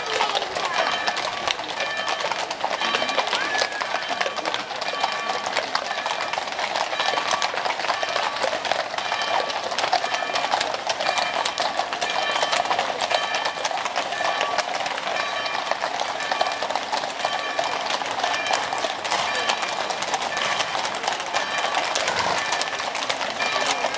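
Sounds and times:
horse hooves on brick paving: 0:00.0 - 0:23.9.

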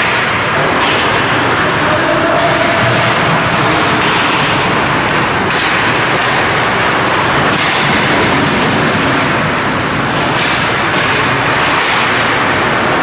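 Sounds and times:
ice rink rushing noise: 0:00.0 - 0:13.0
skates scraping on ice: 0:00.0 - 0:13.0.

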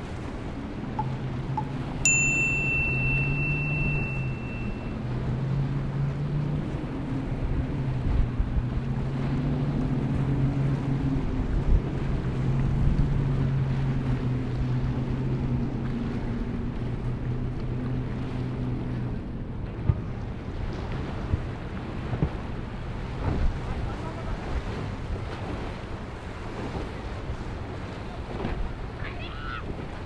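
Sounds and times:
outboard engines droning: 0:00.0 - 0:30.0
wind: 0:00.0 - 0:30.0
bell-like chime: 0:01.0 - 0:04.9.

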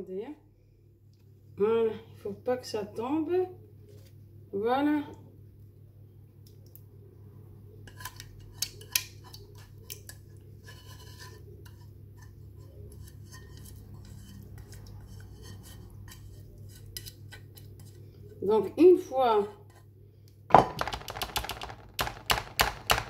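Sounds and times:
whisk scraping metal saucepan: 0:07.9 - 0:18.4.

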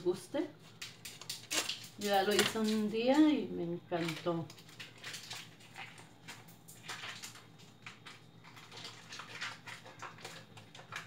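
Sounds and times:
food wrapper crinkling: 0:00.6 - 0:03.0, 0:04.0 - 0:11.0.

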